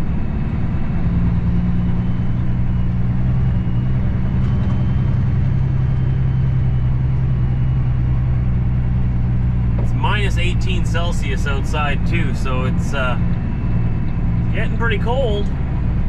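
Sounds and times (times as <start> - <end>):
diesel truck engine drone: 0.0 - 16.0.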